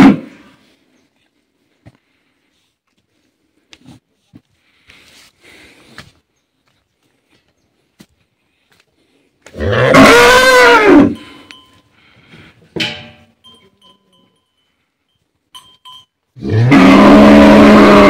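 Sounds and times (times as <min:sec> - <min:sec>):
cattle mooing: 0:09.6 - 0:11.2, 0:16.4 - 0:18.0.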